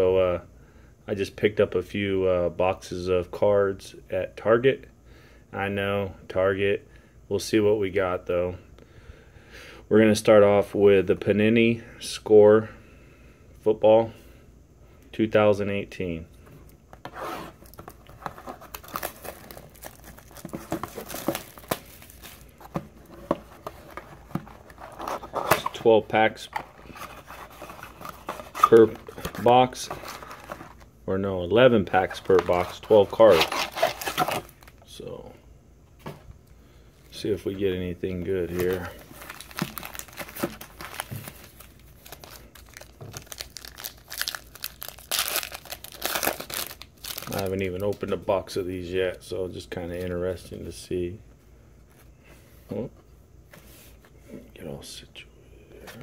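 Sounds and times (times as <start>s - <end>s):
foil wrappers crinkling: 17.6s - 30.9s, 31.8s - 34.9s, 38.4s - 48.2s
plastic shrink-wrap tearing: 32.2s - 34.7s, 38.6s - 48.0s.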